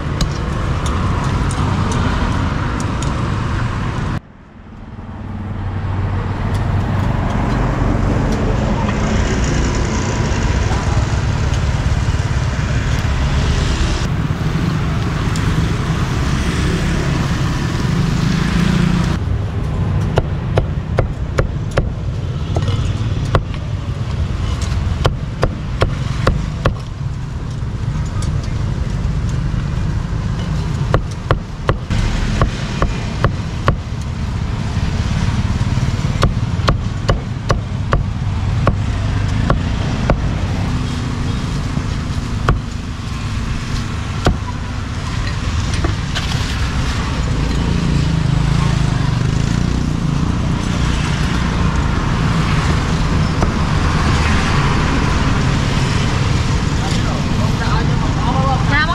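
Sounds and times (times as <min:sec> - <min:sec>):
road traffic rumble: 0:00.0 - 0:58.9
cleaver chopping on wooden block: 0:36.2 - 0:40.3.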